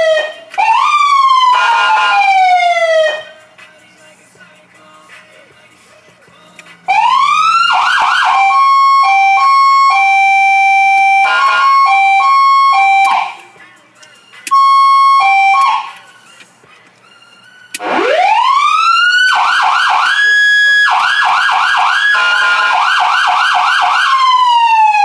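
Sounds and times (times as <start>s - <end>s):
electronic siren wailing: 0.0s - 3.4s, 6.9s - 13.4s, 14.5s - 16.0s, 17.1s - 25.0s.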